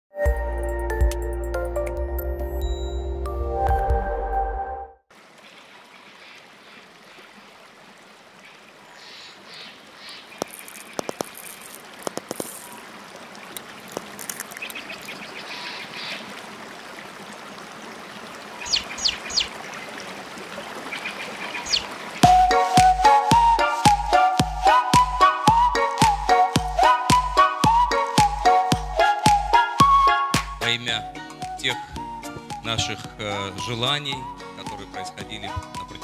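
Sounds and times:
music with a beat: 0.2s - 2.1s, 22.2s - 36.0s
trickling water: 5.1s - 30.2s
cartoon eggshell cracks: 10.4s - 12.7s, 13.8s - 14.8s.

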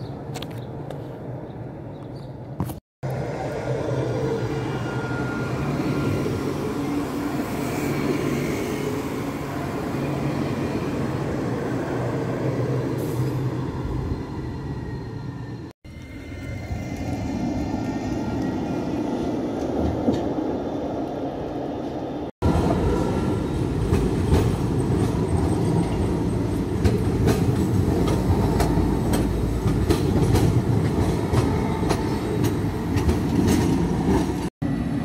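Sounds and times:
tram rumbling: 0.0s - 35.0s.

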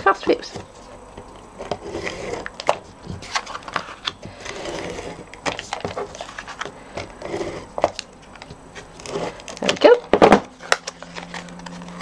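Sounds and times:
card rustling: 0.5s - 12.0s.

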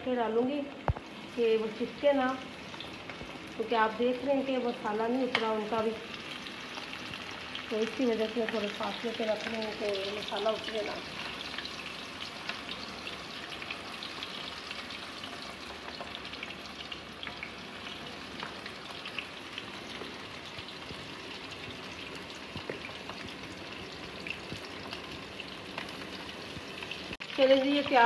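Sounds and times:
chicken frying in hot oil: 0.1s - 28.0s
crackles and pops of oil: 0.8s - 1.1s, 9.4s - 12.8s, 18.3s - 28.0s.

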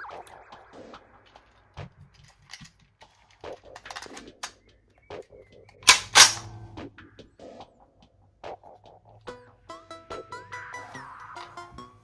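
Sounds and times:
loud sharp magazine clicks: 5.8s - 6.6s.

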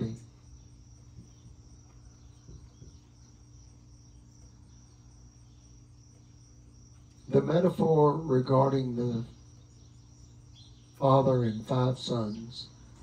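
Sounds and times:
insect trilling: 0.0s - 13.0s
low steady hum: 0.0s - 13.0s.

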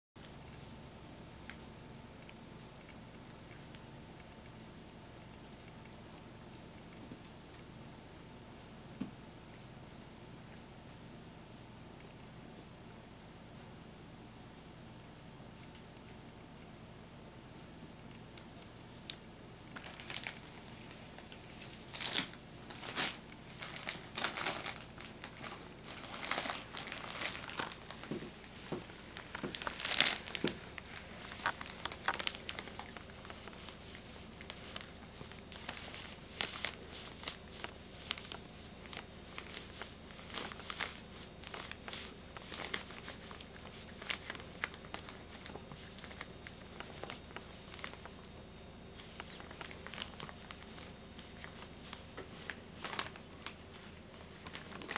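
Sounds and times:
plastic bag crinkling: 19.1s - 54.9s.

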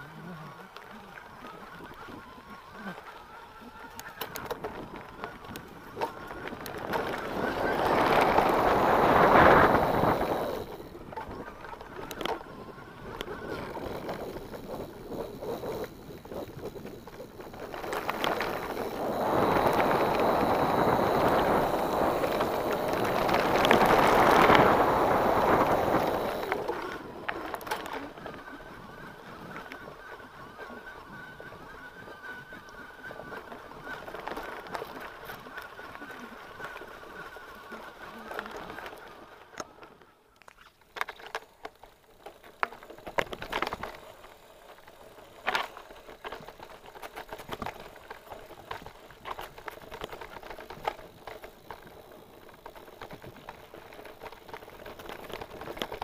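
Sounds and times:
bike rattling over bumps: 1.6s - 40.0s, 40.7s - 56.0s
wind rushing over microphone: 4.6s - 27.4s.

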